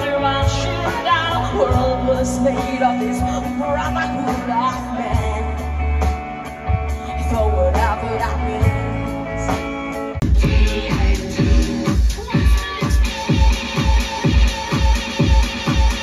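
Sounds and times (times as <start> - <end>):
bass notes: 0.0 - 16.0
electric guitar: 0.0 - 16.0
live rock band playing: 0.0 - 16.0
drums cymbal beat: 9.5 - 16.0.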